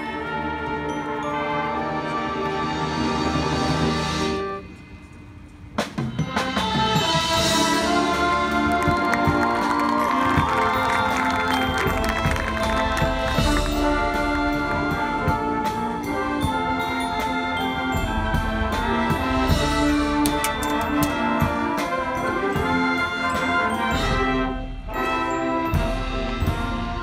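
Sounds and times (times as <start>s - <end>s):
mallet and timpani percussion: 5.7s - 27.0s
marching drums: 5.7s - 27.0s
brass horns holding chords: 6.2s - 27.0s.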